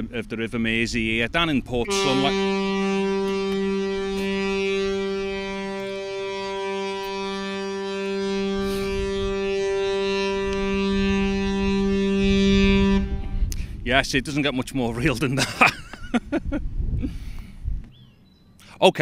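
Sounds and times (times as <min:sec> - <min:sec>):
ship's horn blast: 0:01.8 - 0:13.9.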